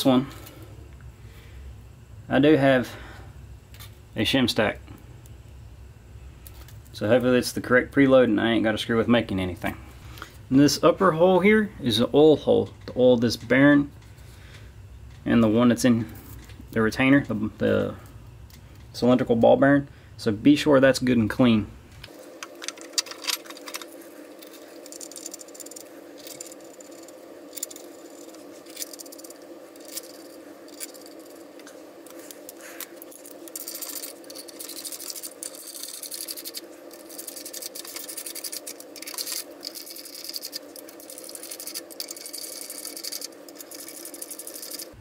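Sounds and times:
steady hum: 0.0 - 45.0
hand ratchet clicking: 33.1 - 45.0.

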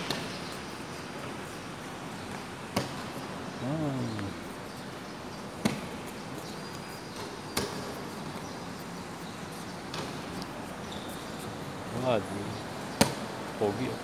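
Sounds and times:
steady background noise: 0.0 - 14.0.

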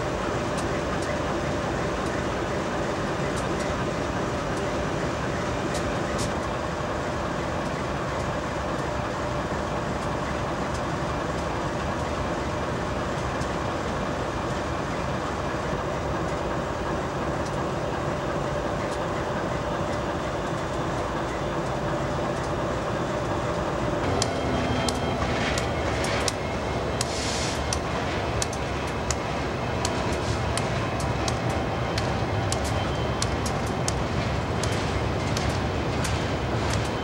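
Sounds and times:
locomotive engine drone: 0.0 - 37.0.

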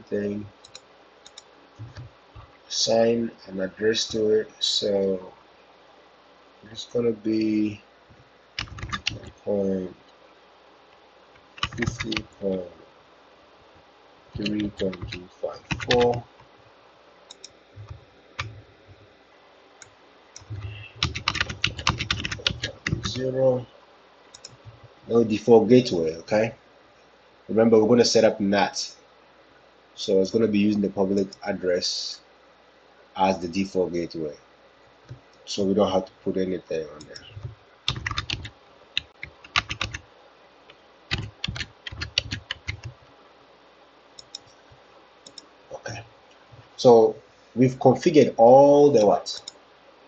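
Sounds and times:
typing on computer keyboard: 8.6 - 9.4, 11.6 - 12.3, 14.4 - 16.2, 20.4 - 23.2, 37.1 - 40.0, 41.1 - 43.0.

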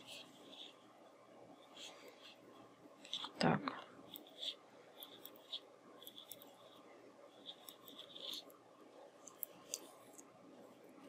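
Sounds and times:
knitting needles clicking: 9.2 - 10.3.

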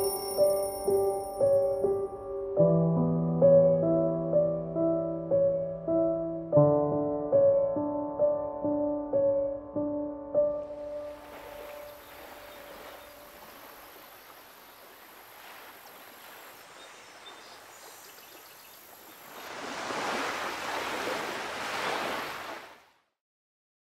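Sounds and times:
piano notes: 0.0 - 13.4.

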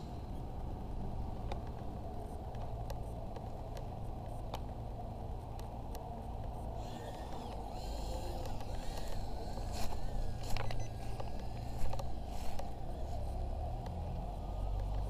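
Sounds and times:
steady low rumble: 0.0 - 15.0
quadcopter motors whining: 6.7 - 15.0.

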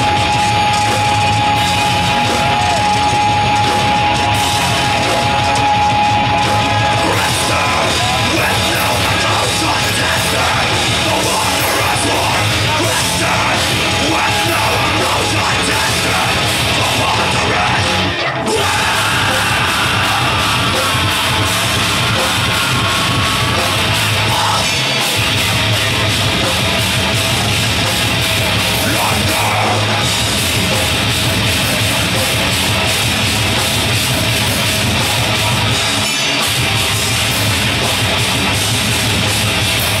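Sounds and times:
heavy metal band playing live: 0.0 - 40.0
shouted vocals: 1.4 - 24.9, 28.6 - 30.2.

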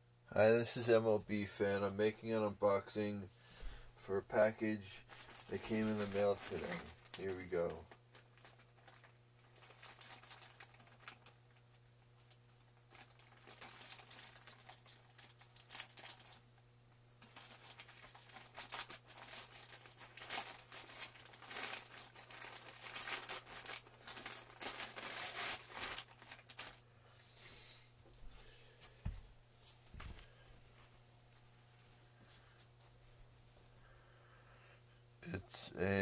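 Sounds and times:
steady low hum: 0.0 - 36.0
plastic bag crinkling and tearing: 4.6 - 16.4, 17.2 - 26.8.

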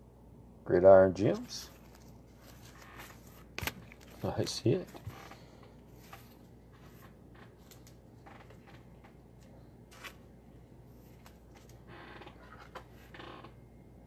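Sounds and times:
trading cards rustling: 1.2 - 8.7.

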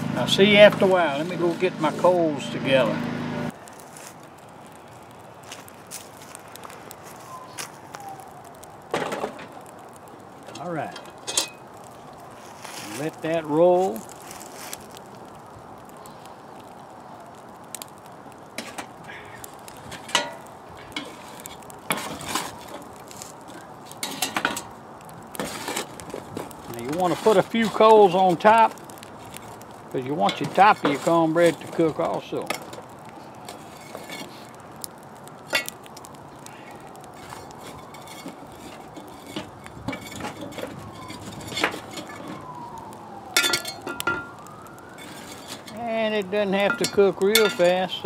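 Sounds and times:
faint siren wailing: 5.9 - 11.2, 11.8 - 18.3, 25.0 - 35.1, 35.9 - 48.0
charcoal clinking in metal pan: 10.4 - 11.7, 19.9 - 22.8, 23.9 - 24.7, 26.7 - 28.7, 30.0 - 32.8, 35.4 - 35.8, 37.2 - 42.4, 43.4 - 44.4, 46.5 - 47.8.

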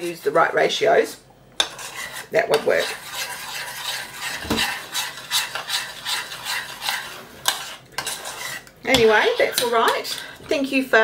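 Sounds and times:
metal spoon scraping a bowl: 1.6 - 10.5.

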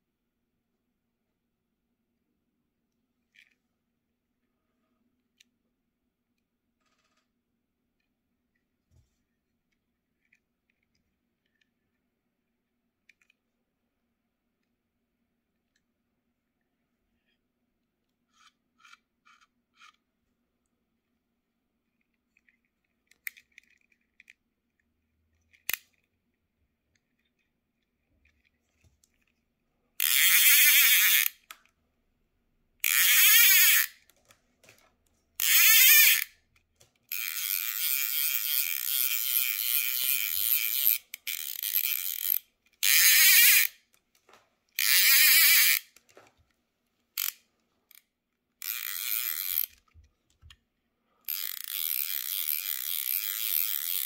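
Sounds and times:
fly reel clicker buzzing: 37.1 - 43.7, 48.6 - 49.7, 51.3 - 54.0.

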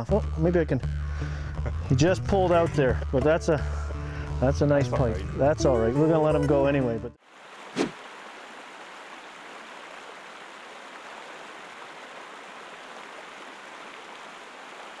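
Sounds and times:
water rushing over rocks: 7.3 - 15.0.

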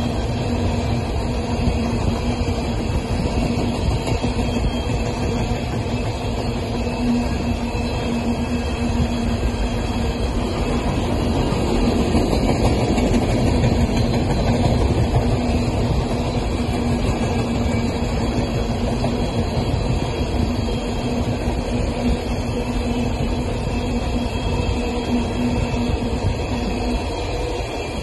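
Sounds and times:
train wheels clattering on rail: 0.0 - 28.0.

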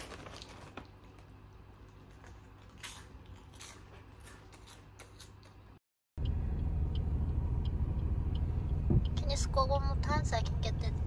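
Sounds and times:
plastic snack bag crinkling: 0.0 - 5.2
low steady hum: 0.0 - 11.0.

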